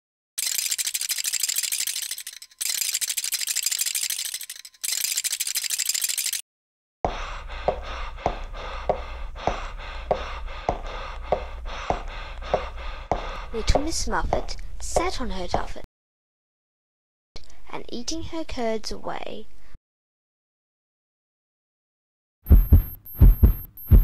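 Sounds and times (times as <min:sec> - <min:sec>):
cartoon bone rattling: 0:00.4 - 0:06.4
sharp knocks beat: 0:22.5 - 0:24.0.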